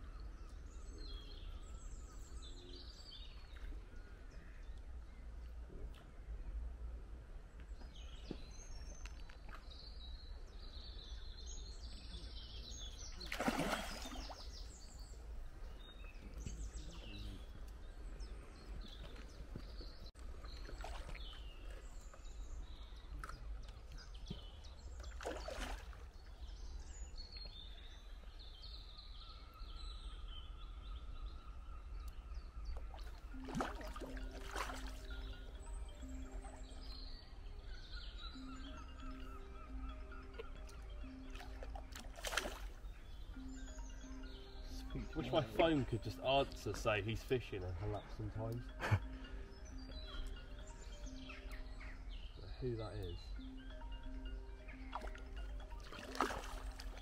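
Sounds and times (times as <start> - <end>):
birdsong: 0.0 - 57.0
fish splashing at surface: 13.2 - 14.3.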